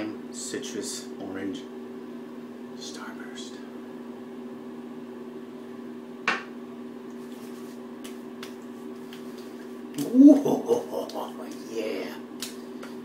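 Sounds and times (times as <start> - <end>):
low room hum: 0.0 - 13.0
hands patting skin: 7.1 - 11.7, 12.4 - 13.0.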